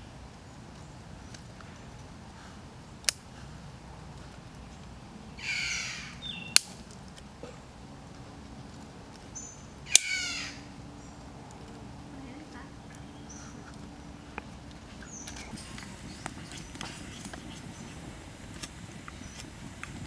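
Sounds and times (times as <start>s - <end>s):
sharp cracks: 3.0s - 12.1s
harsh bird calls: 4.2s - 8.0s, 9.2s - 20.0s.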